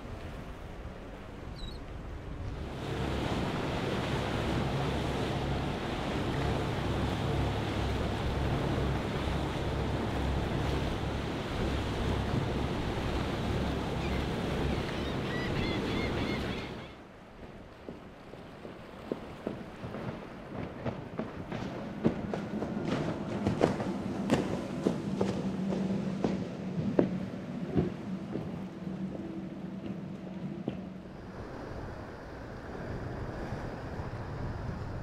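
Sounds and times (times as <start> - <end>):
rushing waves: 0.0 - 35.0
boat engines running: 2.0 - 17.0, 17.9 - 35.0
wind buffeting microphone: 17.4 - 35.0.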